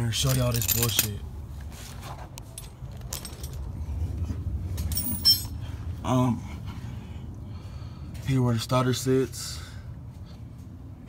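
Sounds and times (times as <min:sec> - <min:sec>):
low rumble of handling: 0:00.0 - 0:08.4
sharp ringing metallic clink: 0:04.8 - 0:05.6.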